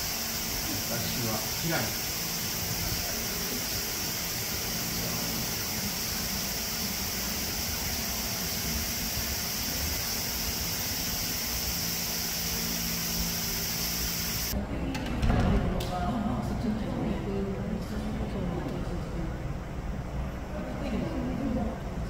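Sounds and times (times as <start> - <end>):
even hiss: 0.0 - 14.6.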